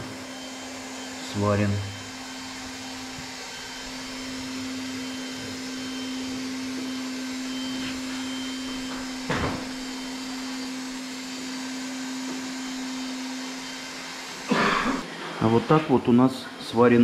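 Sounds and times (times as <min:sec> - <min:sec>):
electric blower motor whirring: 0:00.0 - 0:15.2
brief thump: 0:09.2 - 0:09.7.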